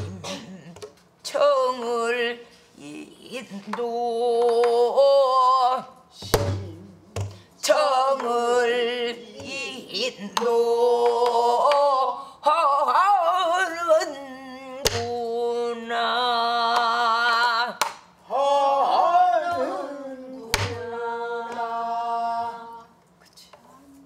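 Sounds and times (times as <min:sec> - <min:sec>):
woman singing with vibrato: 0:00.0 - 0:23.0
barrel drum: 0:06.2 - 0:07.4.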